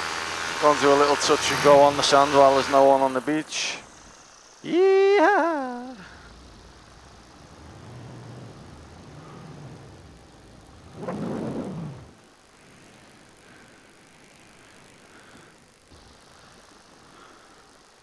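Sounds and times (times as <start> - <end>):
paramotor engine and propeller: 0.0 - 18.0
rush of noise: 1.2 - 14.0.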